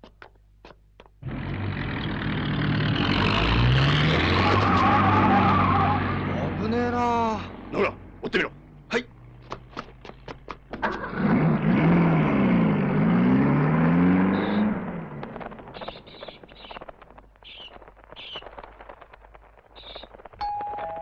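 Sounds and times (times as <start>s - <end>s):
car speeding past: 1.2s - 6.7s, 10.9s - 15.4s.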